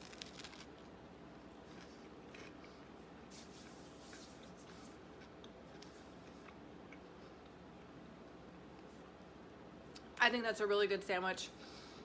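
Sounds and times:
person chewing: 0.0s - 7.6s.

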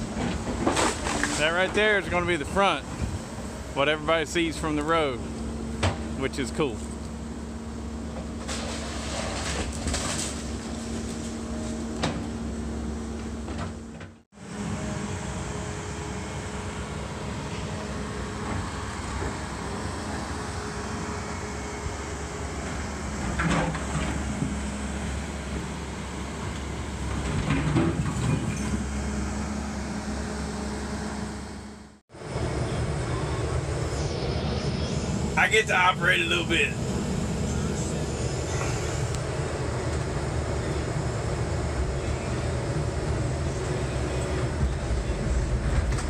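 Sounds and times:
excavator diesel engine: 0.0s - 46.0s
rattling debris: 8.3s - 11.9s.

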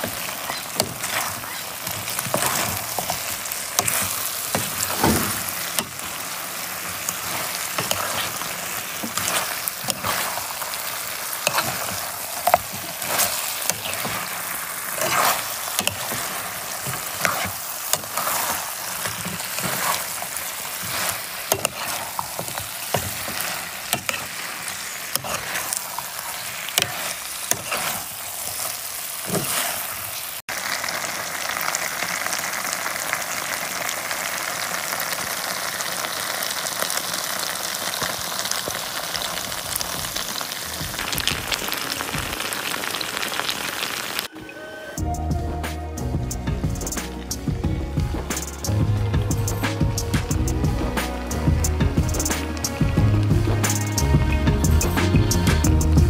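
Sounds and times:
food sizzling in a frying pan: 0.0s - 44.4s, 46.0s - 56.0s
metal spoon scraping a pan: 7.0s - 10.6s, 11.3s - 30.0s.

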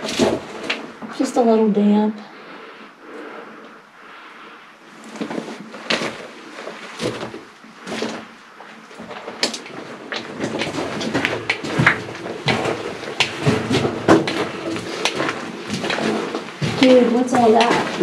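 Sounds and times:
scrapes and knocks on rock: 0.0s - 0.9s, 5.1s - 18.0s.

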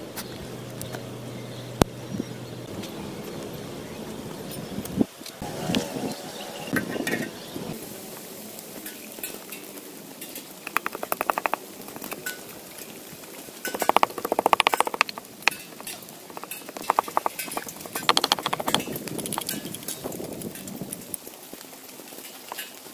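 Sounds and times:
pestle pounding in a mortar: 10.7s - 12.2s, 13.7s - 19.9s.

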